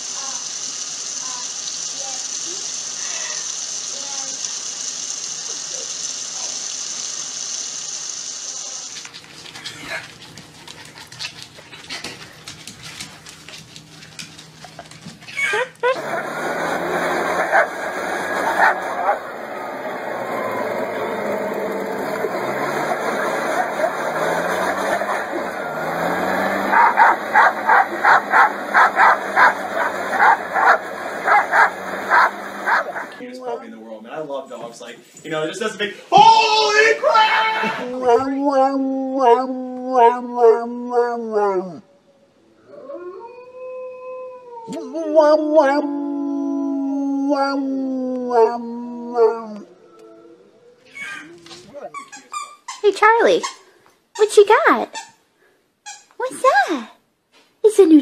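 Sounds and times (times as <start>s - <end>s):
leaf blower running: 0.0s - 10.0s, 13.0s - 33.2s
dog scrambling on hard floor: 9.0s - 15.7s
dog barking: 17.3s - 19.3s, 26.7s - 33.2s.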